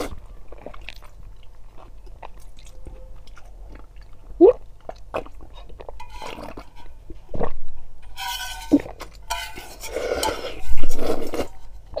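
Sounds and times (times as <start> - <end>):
metal bowl clinking: 6.0 - 7.0, 8.0 - 12.0
person slurping broth: 9.6 - 12.0.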